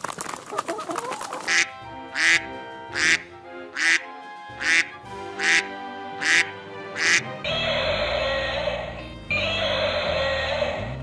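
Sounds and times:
duck quacking: 0.7s - 8.8s
background music with held notes: 1.4s - 11.0s.

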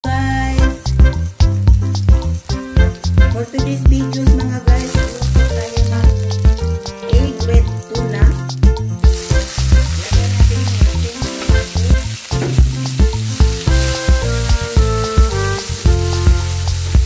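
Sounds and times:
background music with a beat: 0.5s - 17.0s
oil sizzling in a pan: 0.6s - 17.0s
wooden spoon stirring: 3.1s - 8.4s, 9.0s - 17.0s.

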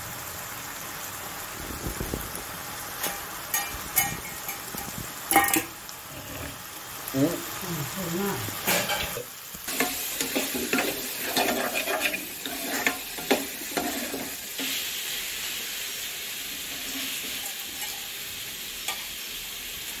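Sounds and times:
food sizzling in oil: 0.0s - 20.0s
spoon stirring and scraping: 3.0s - 6.5s, 8.6s - 14.8s.

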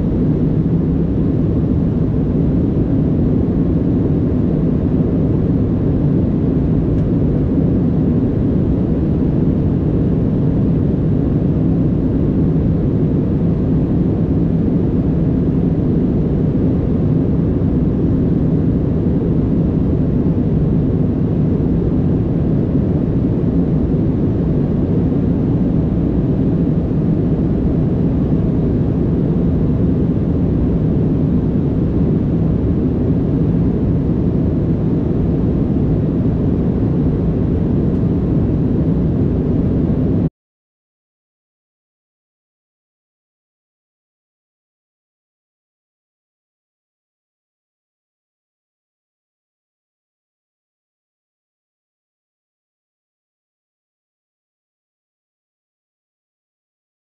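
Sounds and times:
jet engines droning: 0.0s - 40.3s.

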